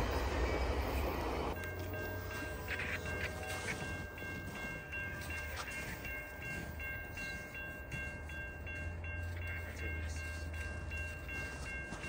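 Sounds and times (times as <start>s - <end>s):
freight train rumble: 0.0s - 12.0s
high ringing tone: 1.5s - 12.0s.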